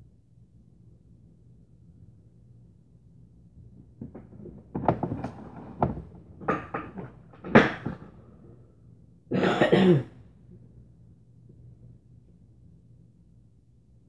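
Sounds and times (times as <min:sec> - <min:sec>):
person coughing: 0:09.3 - 0:10.2.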